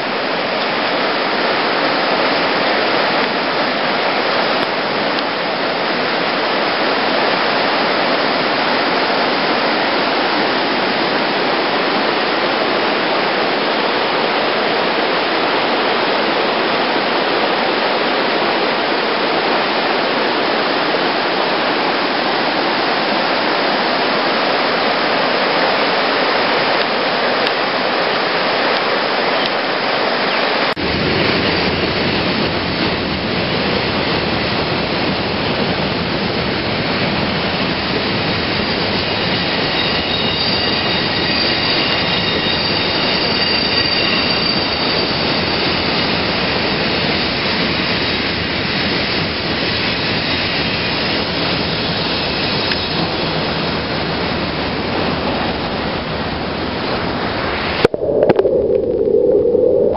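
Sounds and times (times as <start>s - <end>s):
river water rushing: 0.0s - 39.9s.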